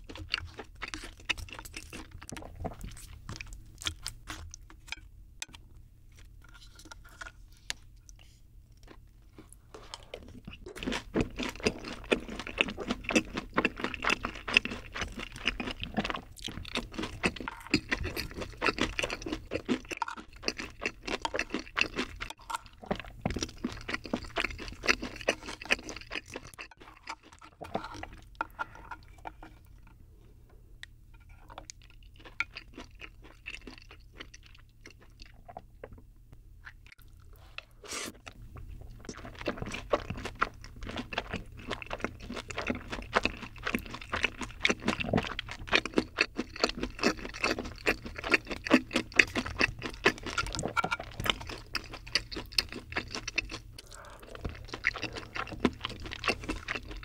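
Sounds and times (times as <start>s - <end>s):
wet mouth eating sounds: 8.8s - 30.0s, 36.6s - 57.0s.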